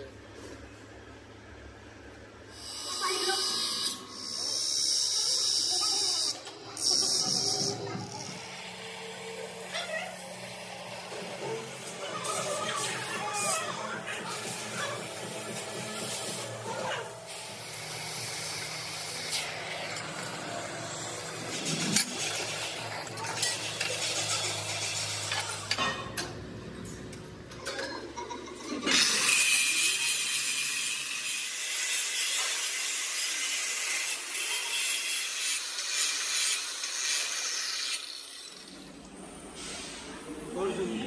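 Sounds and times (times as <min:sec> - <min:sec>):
cutting torch hissing: 0:02.5 - 0:25.7, 0:28.9 - 0:38.8, 0:39.4 - 0:40.3
angle grinder cutting steel: 0:02.6 - 0:26.2, 0:28.5 - 0:39.0.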